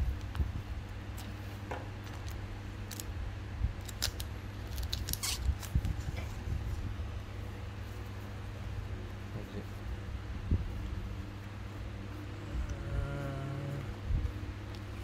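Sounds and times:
steady low hum: 0:00.0 - 0:15.0
foil pack crinkling: 0:03.8 - 0:06.2.

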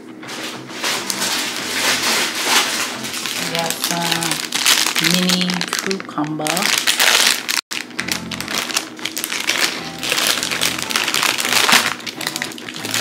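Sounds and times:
plastic bag crinkling: 0:00.4 - 0:13.0
background music: 0:00.6 - 0:04.5, 0:07.8 - 0:13.0.

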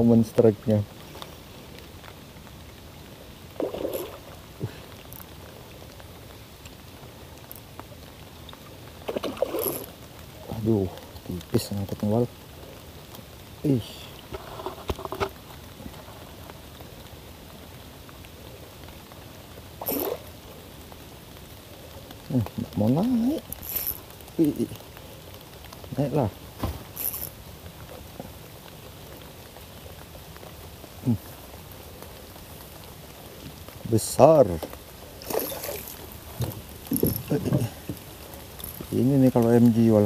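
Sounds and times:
rain hissing on river: 0:00.0 - 0:40.0
fishing reel and tackle handling: 0:23.5 - 0:24.0, 0:27.0 - 0:27.4, 0:35.2 - 0:37.7.

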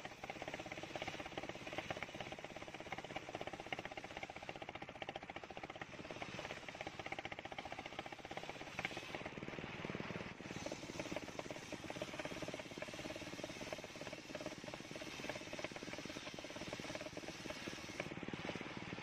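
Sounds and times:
circular saw cutting timber: 0:10.4 - 0:18.8.

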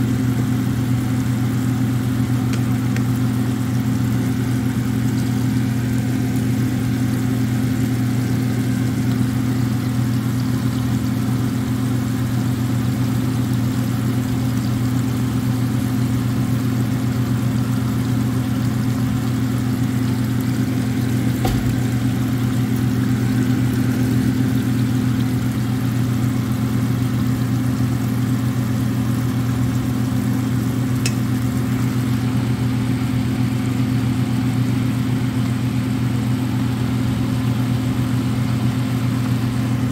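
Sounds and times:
appliance electrical hum: 0:00.0 - 0:39.9.

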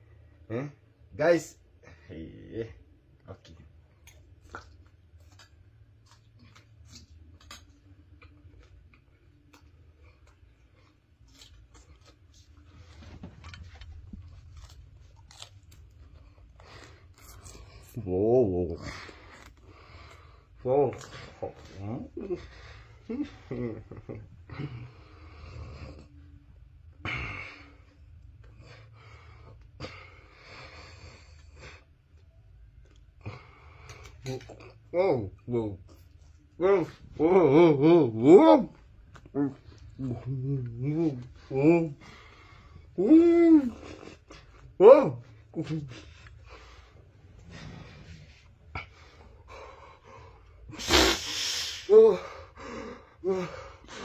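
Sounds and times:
low steady hum: 0:00.0 - 0:54.0
person chewing crunchy food: 0:03.9 - 0:18.0.

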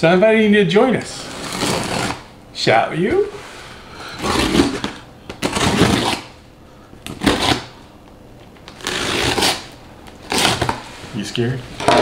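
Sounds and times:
blade scraping through packing tape: 0:01.2 - 0:02.3, 0:04.2 - 0:06.4, 0:07.1 - 0:07.8, 0:08.7 - 0:10.9.

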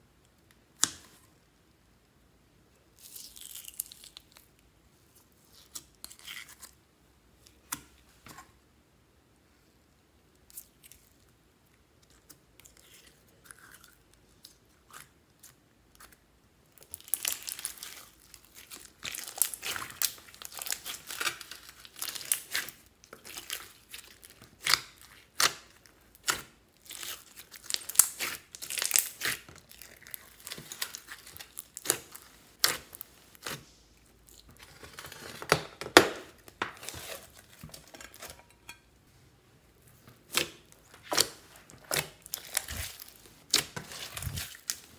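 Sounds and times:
slime squished by hand crackling: 0:16.8 - 0:33.7.

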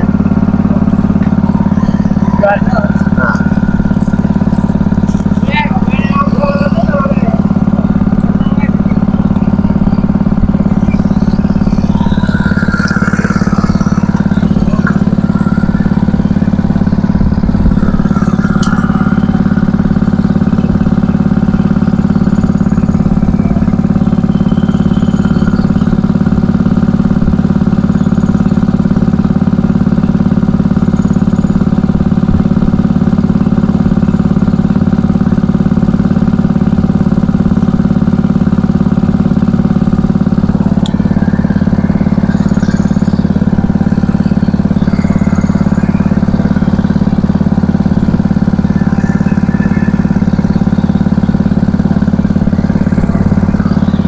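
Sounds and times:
small engine humming: 0:00.0 - 0:54.0.

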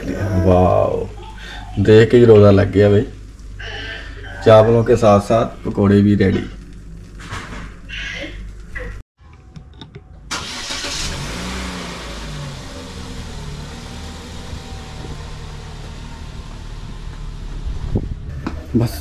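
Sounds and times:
car engine running: 0:10.3 - 0:19.0.

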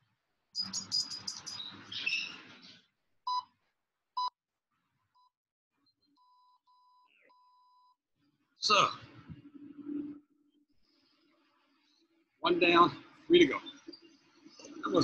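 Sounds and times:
electronic timer beeps: 0:00.6 - 0:01.7
high chirps: 0:00.6 - 0:02.4.

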